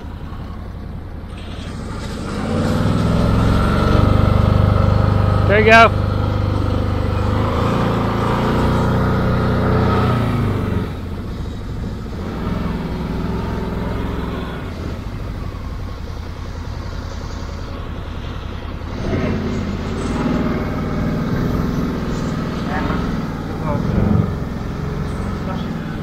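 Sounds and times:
engine running hard under load: 0.0s - 26.0s.

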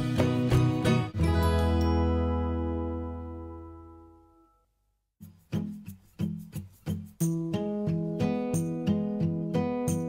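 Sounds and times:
music chord ringing: 1.2s - 4.7s.

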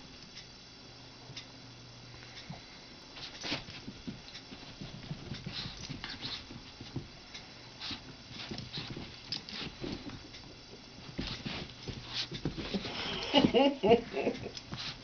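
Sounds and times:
scuffling: 3.2s - 7.2s, 7.8s - 14.1s.

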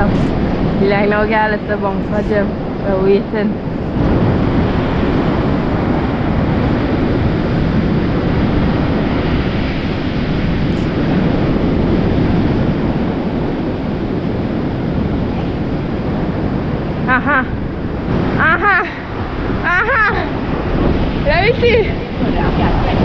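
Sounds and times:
surf breaking on shore: 0.0s - 23.0s
wind buffeting microphone: 0.0s - 23.0s.

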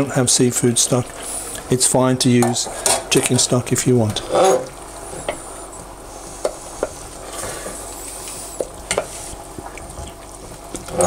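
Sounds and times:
stock sizzling in a pan: 4.7s - 9.6s.

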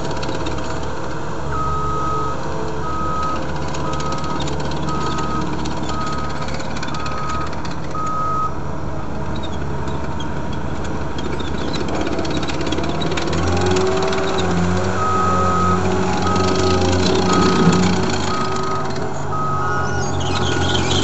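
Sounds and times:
diesel engine running: 0.0s - 21.0s
reversing alarm beeping: 1.5s - 8.6s, 15.0s - 21.0s.

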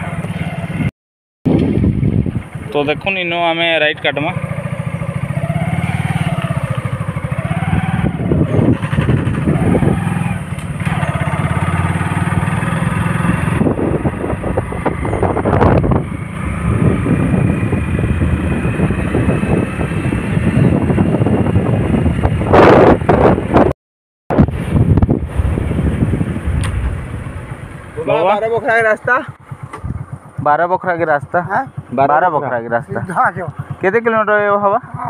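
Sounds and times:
motorcycle engine running: 0.0s - 0.9s, 1.5s - 23.7s, 24.4s - 35.0s
wind rushing over microphone: 1.5s - 3.0s, 5.8s - 23.7s, 24.3s - 28.6s, 29.7s - 30.4s.

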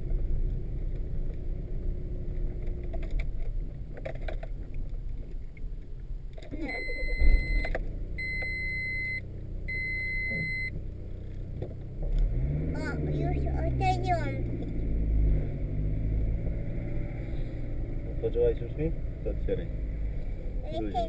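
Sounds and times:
car engine running: 0.0s - 21.0s
electronic beeps: 6.6s - 10.7s.

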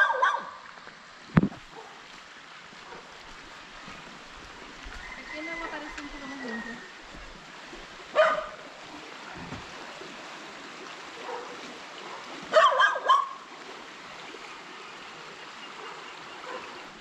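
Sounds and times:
dog barking: 0.0s - 0.6s, 1.7s - 2.0s, 2.9s - 3.1s, 8.1s - 8.6s, 11.2s - 13.4s, 15.8s - 16.8s
shallow stream rushing: 0.0s - 17.0s.

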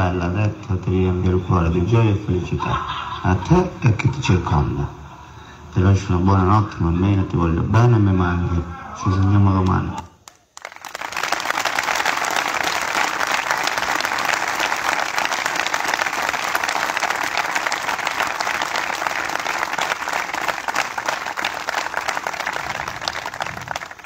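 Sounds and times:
crowd applauding: 10.2s - 24.0s.

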